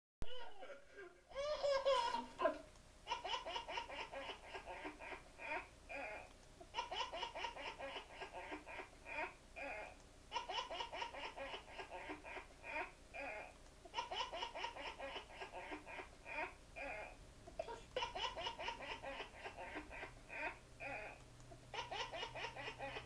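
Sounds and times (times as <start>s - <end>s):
baby laughing: 0.3s - 23.0s.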